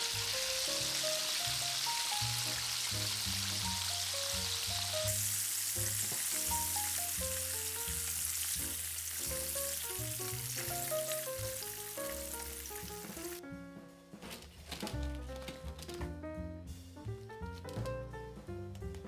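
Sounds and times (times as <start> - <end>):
food sizzling in hot oil: 0.0 - 13.4
light background music: 0.0 - 19.0.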